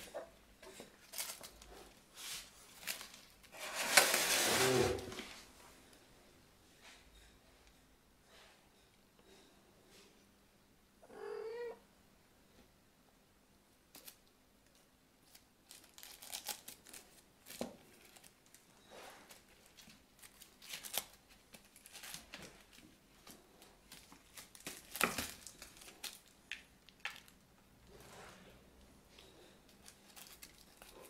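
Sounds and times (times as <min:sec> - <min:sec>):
scratching and rustling: 0:00.0 - 0:05.5
kitten mewing: 0:11.0 - 0:11.8.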